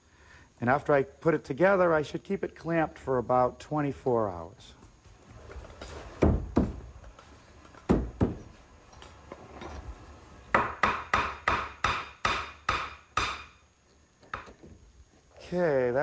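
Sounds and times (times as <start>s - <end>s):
hammer striking wooden door frame: 6.2s - 6.8s, 7.9s - 8.4s, 10.5s - 13.5s.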